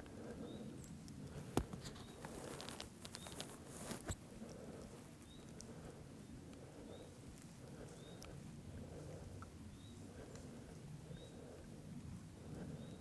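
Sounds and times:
rustling in dry grass: 1.4s - 9.1s.

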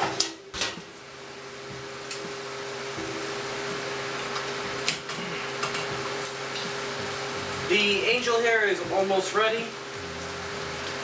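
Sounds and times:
shrimp sizzling in a skillet: 0.0s - 11.0s
steady low hum: 0.8s - 11.0s.

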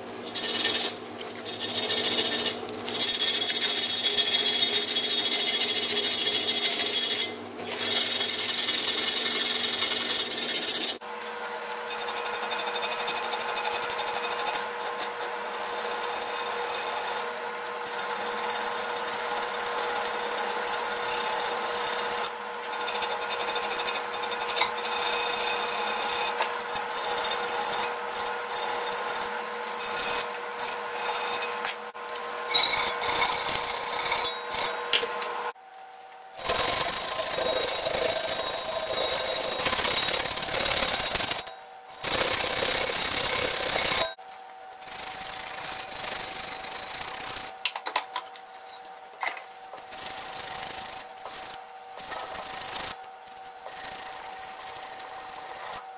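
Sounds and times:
electric drill drilling metal: 36.4s - 44.2s.

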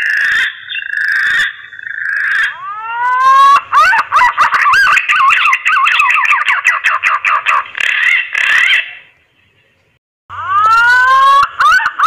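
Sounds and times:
pigeon whistling calls: 2.4s - 9.0s.

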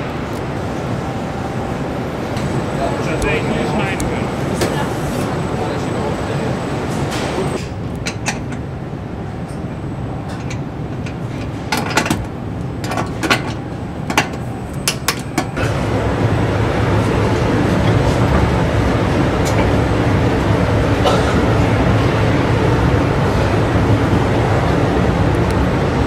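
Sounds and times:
machinery rumble: 0.0s - 26.0s.

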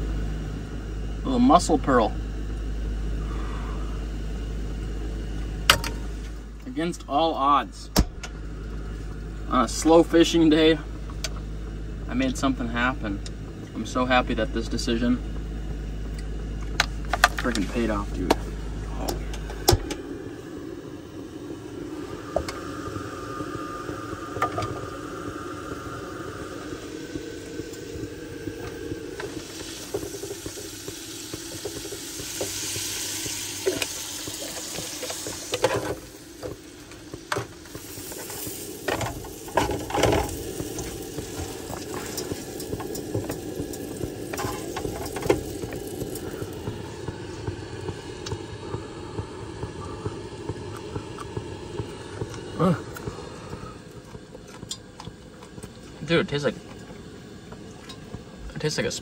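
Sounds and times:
food hissing while cooking: 19.5s - 54.0s.

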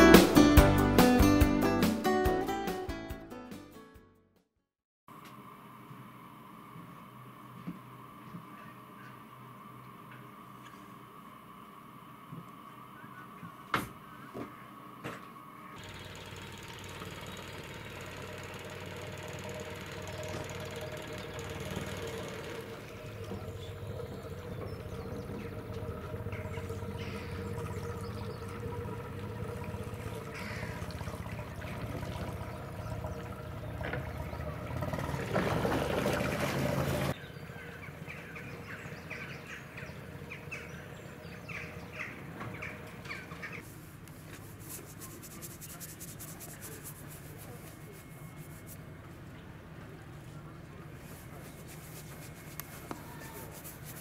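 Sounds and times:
small birds chirping: 15.6s - 18.7s, 19.3s - 31.7s, 37.0s - 43.7s, 44.6s - 54.0s
boat engine running: 15.8s - 54.0s.

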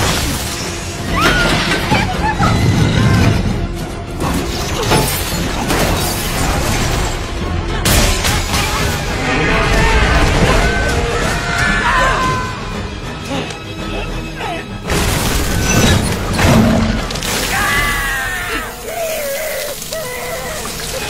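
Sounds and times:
dramatic music: 0.0s - 21.0s
booms and crashing debris: 14.9s - 18.4s.

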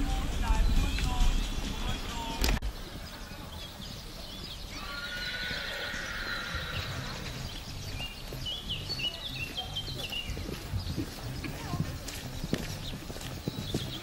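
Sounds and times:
horse whinnying: 4.7s - 7.4s.

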